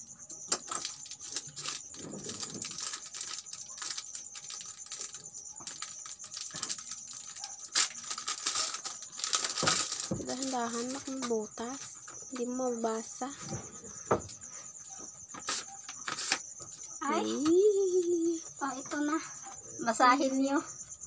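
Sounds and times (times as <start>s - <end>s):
paper crinkling and rustling: 0.6s - 11.3s.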